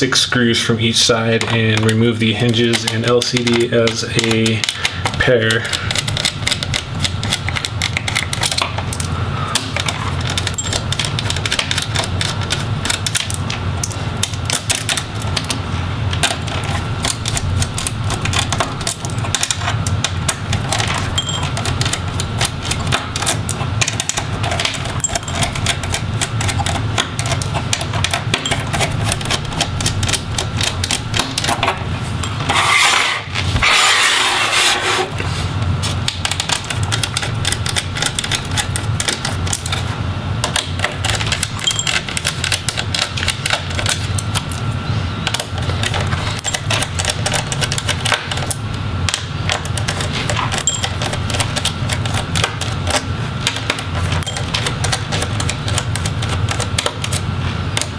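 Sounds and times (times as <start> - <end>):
small metal parts clinking: 10.3 - 11.2, 21.2 - 22.0, 23.9 - 27.4, 28.3 - 29.2, 32.2 - 32.6, 41.2 - 43.1, 45.8 - 48.5, 50.4 - 51.6, 54.1 - 55.4.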